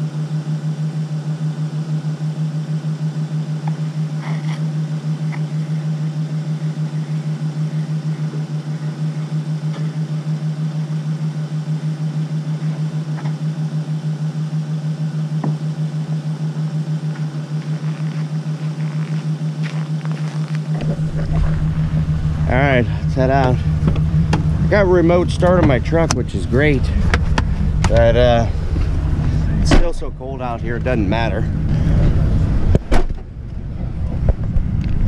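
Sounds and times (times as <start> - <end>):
pickup engine idling: 2.7 - 35.0
footsteps on ice: 17.6 - 22.0.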